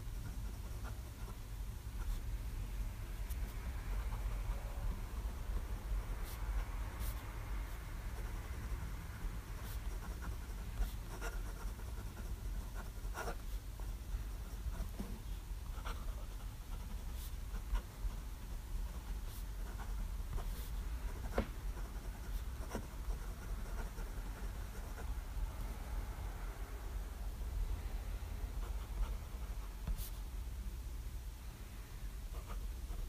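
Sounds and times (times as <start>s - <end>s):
fountain pen scratching on paper: 8.1s - 15.0s, 15.7s - 25.1s, 32.3s - 33.0s.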